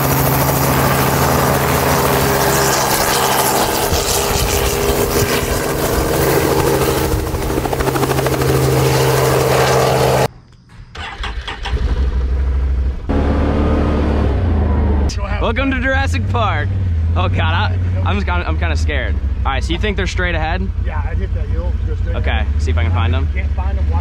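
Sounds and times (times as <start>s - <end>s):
helicopter engine and rotor: 0.0s - 10.3s.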